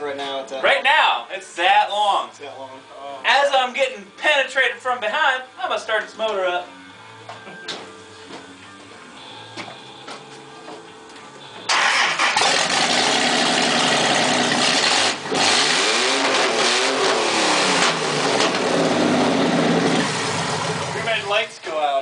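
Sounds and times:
loud engine running and revving: 11.7 - 21.1.

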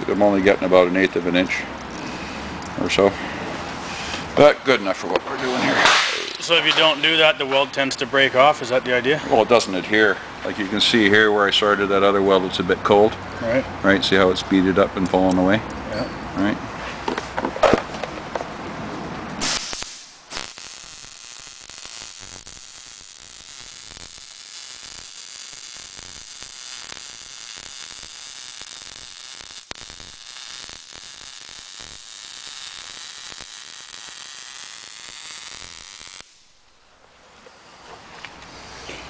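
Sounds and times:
welding arc crackling sizzle: 5.1 - 8.6, 19.4 - 36.9.

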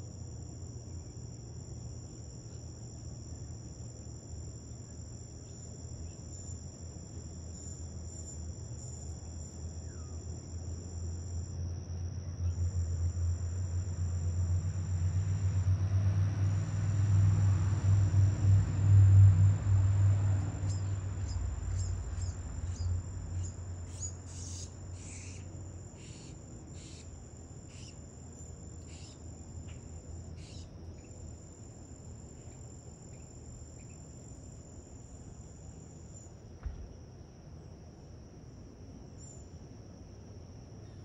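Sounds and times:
insects trilling: 0.0 - 37.0, 39.2 - 40.1
soft knock: 36.6 - 36.9.

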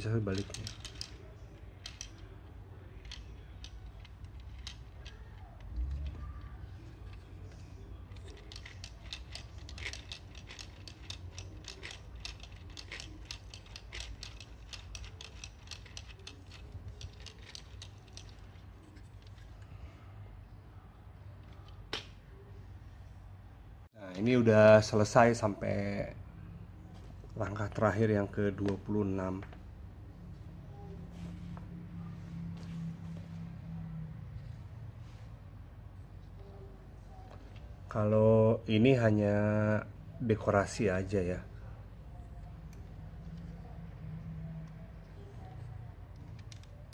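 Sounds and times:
low background hum: 0.0 - 46.9
plastic gears clicking: 0.3 - 1.2, 1.8 - 2.3, 3.0 - 7.3, 8.1 - 19.5.

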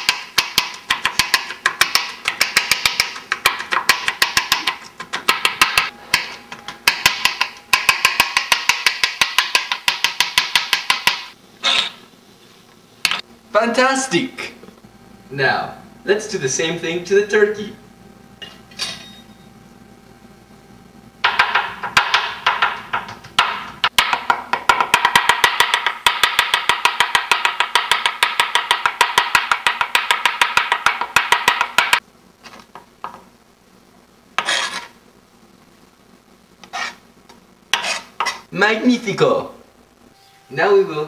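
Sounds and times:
knife chopping on wooden board: 37.8 - 38.4.

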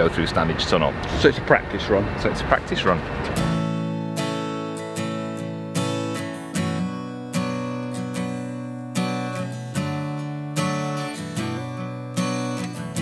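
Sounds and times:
acoustic guitar strumming chords: 3.2 - 13.0.

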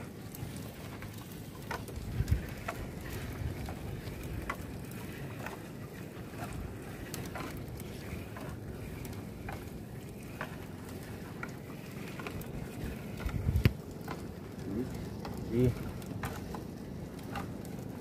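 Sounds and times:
net and gear knocking hull: 0.0 - 18.0
water noise: 0.0 - 18.0
wind on microphone: 2.0 - 4.8, 12.6 - 13.8.

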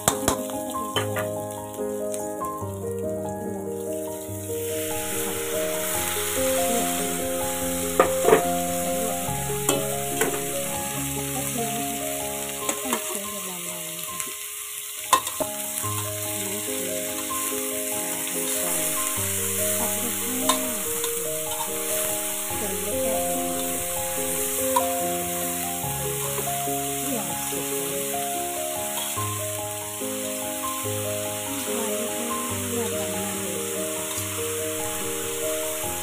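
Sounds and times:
food sizzling in a wok: 0.0 - 36.0
spatula scraping and knocking pan: 7.8 - 8.9, 9.5 - 10.8.

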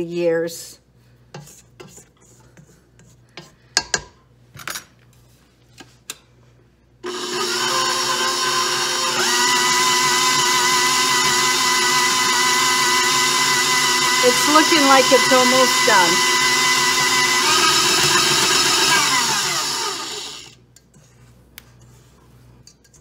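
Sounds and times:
spatula scraping steel bowl: 1.3 - 3.6
stand mixer motor whine: 7.0 - 20.6.

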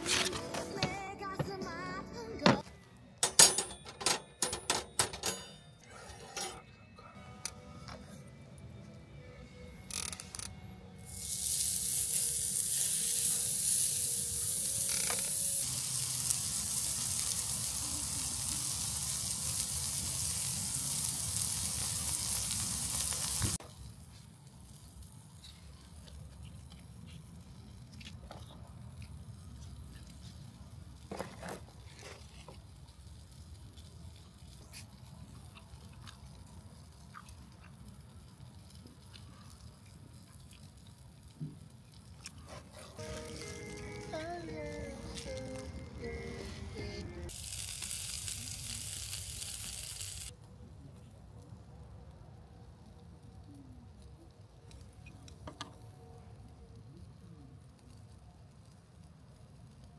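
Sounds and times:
meat sizzling on a griddle: 11.0 - 25.4, 43.0 - 46.2, 47.3 - 50.3.

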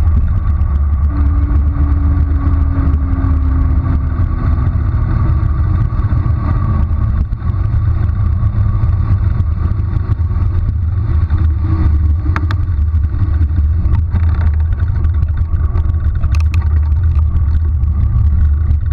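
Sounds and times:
low wind rumble on microphone: 0.0 - 18.9.

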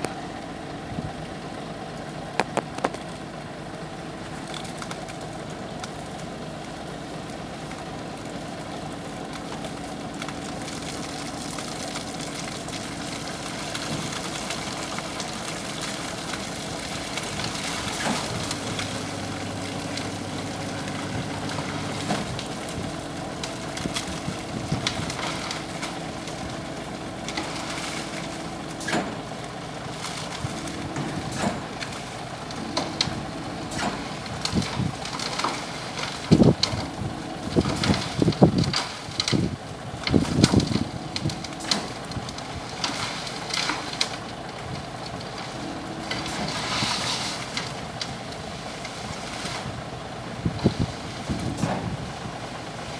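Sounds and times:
diesel engine running: 0.0 - 52.9
sludge pouring out: 4.3 - 51.7.

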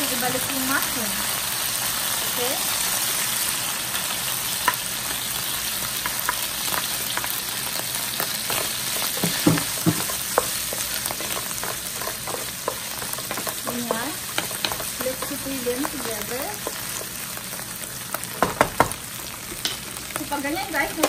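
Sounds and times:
food sizzling in frying pan: 0.0 - 21.0
wooden spoon knocking on pan: 8.5 - 17.1, 18.3 - 19.0.

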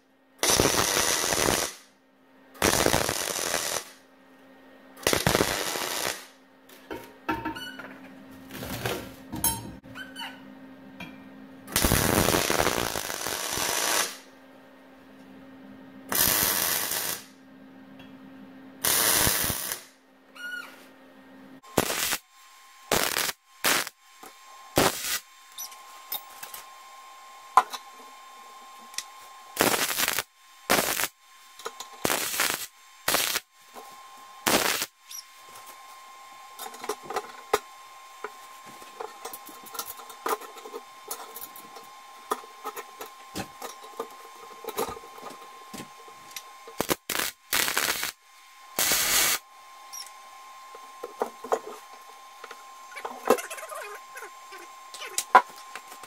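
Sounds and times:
welding arc crackle: 0.4 - 1.9, 2.6 - 4.0, 5.0 - 6.4, 11.7 - 14.3, 16.1 - 17.3, 18.8 - 19.9, 21.7 - 22.3, 22.9 - 24.0, 24.8 - 25.7, 29.6 - 33.5, 34.4 - 35.7, 46.6 - 48.2, 48.8 - 49.4.

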